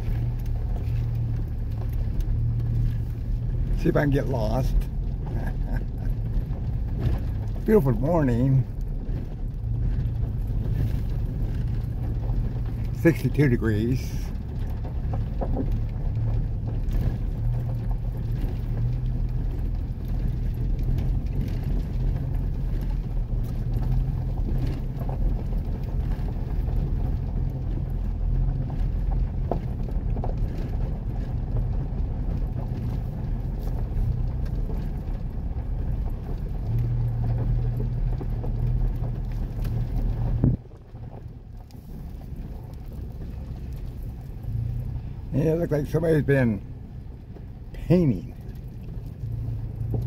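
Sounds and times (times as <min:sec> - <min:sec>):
vehicle engine and road rumble: 0:00.0 - 0:50.0
light knocks and rattles: 0:13.9 - 0:50.0.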